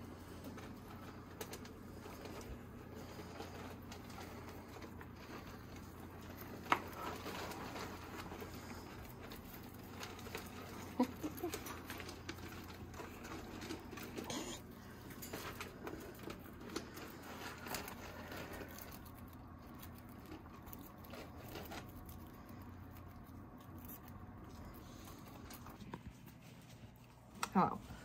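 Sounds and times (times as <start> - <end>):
rats scratching in wire cage: 0.0 - 27.7
squeaky sounds: 14.3 - 14.6.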